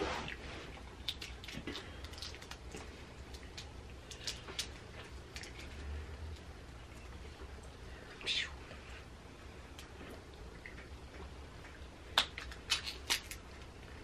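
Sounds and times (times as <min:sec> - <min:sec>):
low steady hum: 0:00.0 - 0:14.0
shells being peeled crackling: 0:00.8 - 0:06.5, 0:12.1 - 0:14.0.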